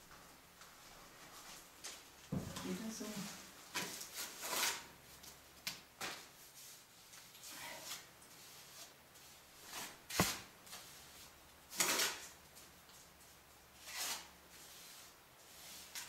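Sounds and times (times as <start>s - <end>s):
trowel scraping and knocking: 9.8s - 10.4s.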